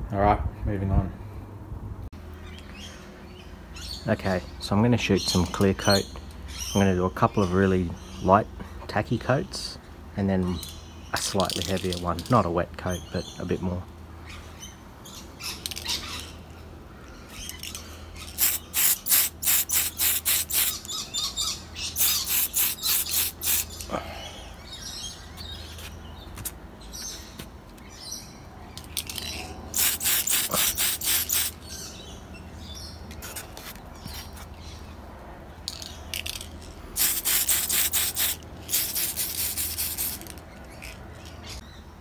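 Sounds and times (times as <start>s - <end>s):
spray can rattling: 11.4s - 12.3s, 17.5s - 20.9s, 22.0s - 23.8s, 28.9s - 31.6s, 35.7s - 41.0s
spray can hissing: 18.3s - 20.9s, 22.0s - 23.8s, 29.7s - 31.6s, 37.0s - 40.4s.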